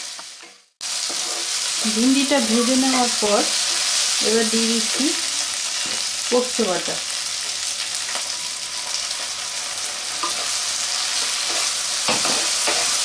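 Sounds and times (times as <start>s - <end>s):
vegetables sizzling in oil: 0.0s - 13.0s.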